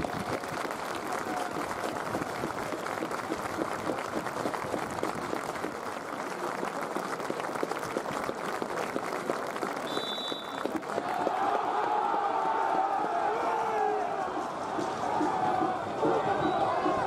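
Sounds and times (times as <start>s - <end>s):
crowd applauding: 0.0s - 17.0s
referee's whistle: 9.9s - 10.7s.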